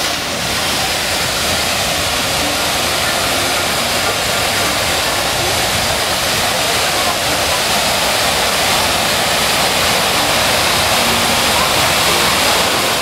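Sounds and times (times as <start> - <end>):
water cascade pouring into pond: 0.0 - 13.0.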